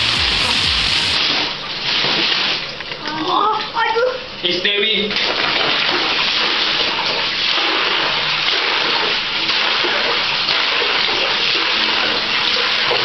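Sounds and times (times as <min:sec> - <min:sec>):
tap water filling plastic bucket: 0:05.1 - 0:13.0.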